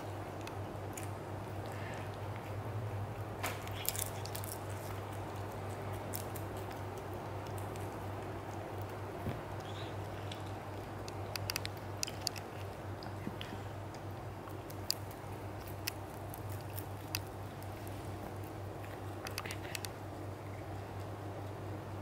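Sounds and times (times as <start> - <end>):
rabbit nibbling greens: 0.0 - 22.0
steady low hum: 0.0 - 22.0.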